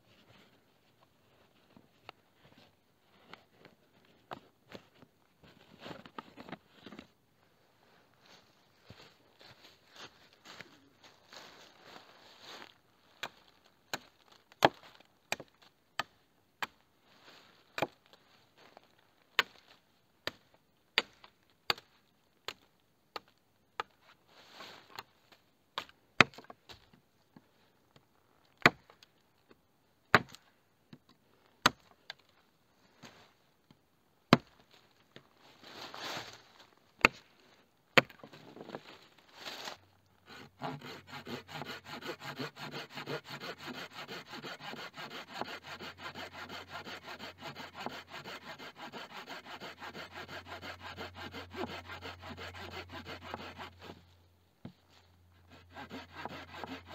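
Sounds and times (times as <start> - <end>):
rustling: 34.7 - 37.6, 38.2 - 49.0
blade chopping wood: 38.0 - 38.3
sawing wood: 40.2 - 54.0, 55.4 - 56.9.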